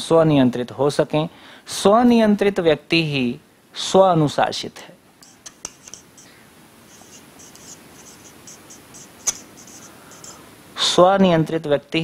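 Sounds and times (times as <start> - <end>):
marker squeaking on whiteboard: 5.2 - 10.5.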